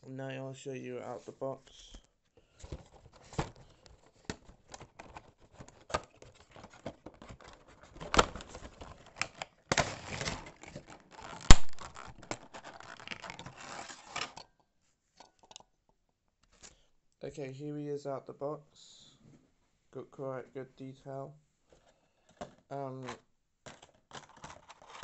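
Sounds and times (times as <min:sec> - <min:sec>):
packaging clicks and rustles: 0:02.5 - 0:14.5, 0:23.7 - 0:25.0.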